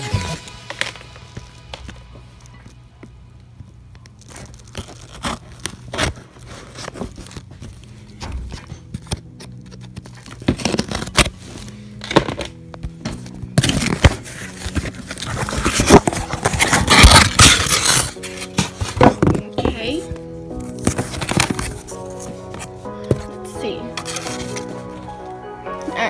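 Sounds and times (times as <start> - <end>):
soft background music: 0.0 - 26.0
packing crackling and tearing: 3.8 - 19.4, 20.5 - 23.3
cardboard box scraping and clicking: 8.4 - 12.5, 13.6 - 19.4, 20.6 - 22.4, 24.0 - 24.8.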